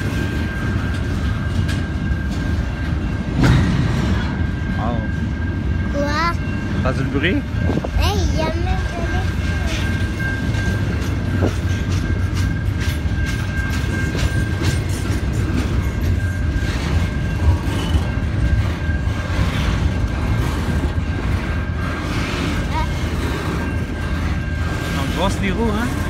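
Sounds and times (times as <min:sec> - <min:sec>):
freight cars rumbling: 0:00.0 - 0:26.0
wheels clicking over rail joints: 0:07.8 - 0:26.0.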